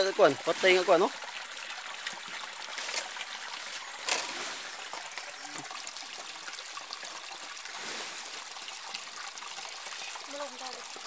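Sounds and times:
stream water running over rocks: 0.0 - 11.0.

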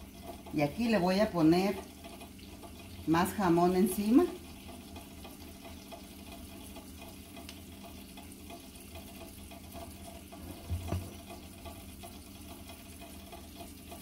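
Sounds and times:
dull knock: 10.4 - 11.2.

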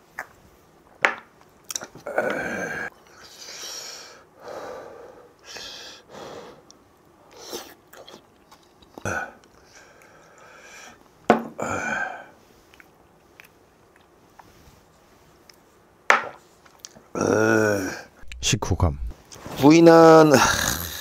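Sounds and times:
man grunting: 2.0 - 2.9, 17.2 - 18.1, 20.2 - 21.0
breathy exhalations: 11.6 - 12.4.

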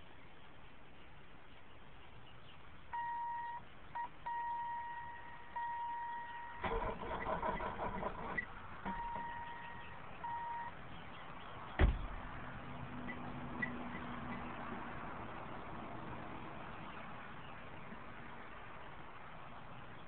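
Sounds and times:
electronic warning beep: 3.0 - 6.6, 8.9 - 10.8.

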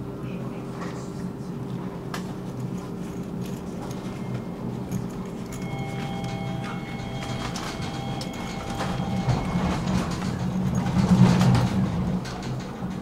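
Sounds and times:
tram rumbling on rails: 0.0 - 13.0
thin whining tones: 4.1 - 10.3.

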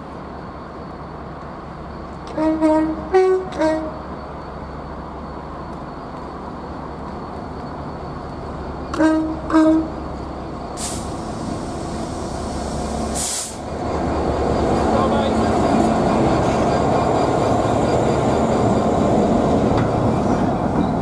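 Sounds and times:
train rumbling: 0.0 - 21.0
locomotive horn blasts: 2.3 - 4.0, 8.9 - 10.0
air hissing: 10.8 - 13.9.

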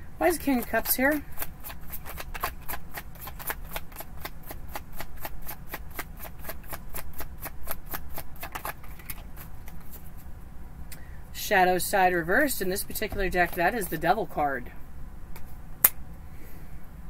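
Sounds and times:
cards being shuffled: 0.5 - 10.3, 13.0 - 14.1.

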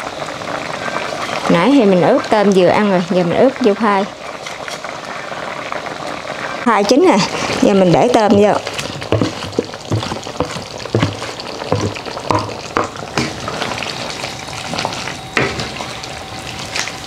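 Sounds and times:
curry sizzling in a wok: 0.0 - 17.0
spatula scraping a pan: 7.4 - 13.8.

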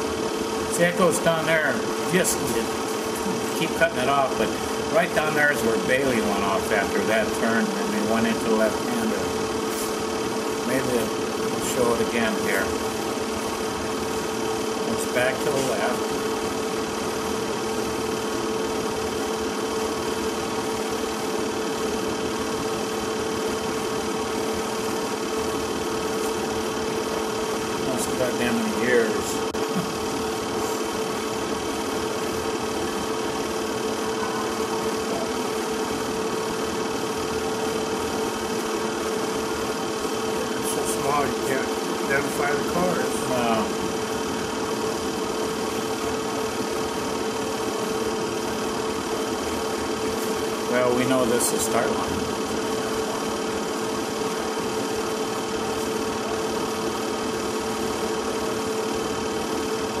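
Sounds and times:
film projector whirring: 0.0 - 60.0.

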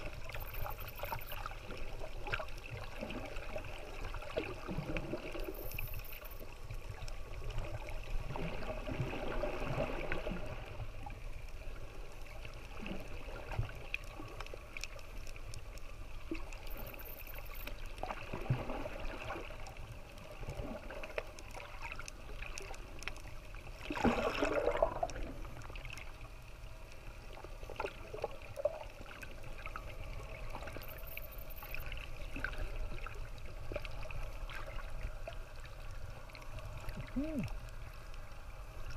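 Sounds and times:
underwater water gurgling: 0.0 - 38.9.

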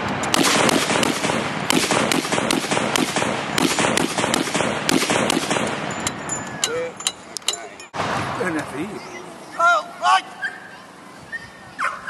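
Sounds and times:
gun firing shots with echo: 0.3 - 5.9.

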